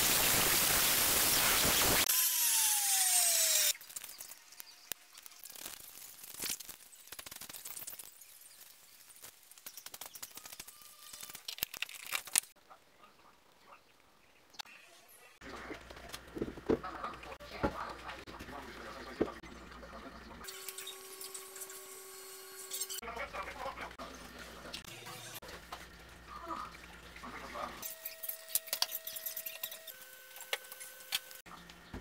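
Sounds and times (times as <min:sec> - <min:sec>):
angle grinder winding down: 0:01.7 - 0:03.8.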